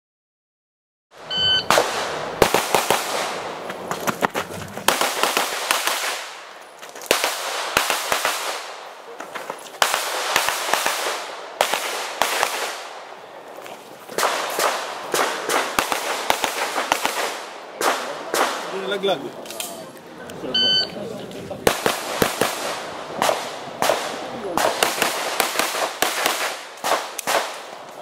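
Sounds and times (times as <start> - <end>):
pistol shots with echo: 1.6 - 3.6, 4.9 - 9.0, 9.8 - 13.2, 14.1 - 19.0, 21.6 - 27.8.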